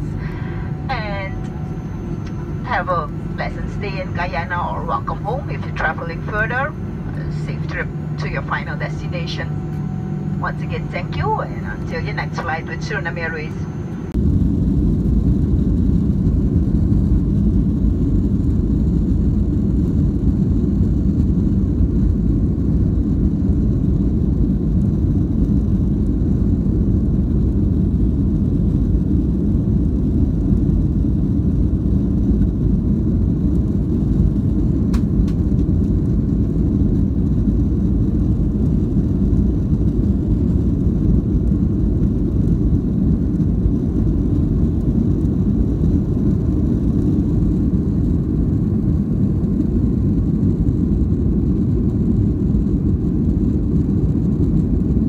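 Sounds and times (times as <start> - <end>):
jet engines rumbling in cabin: 0.0 - 55.0.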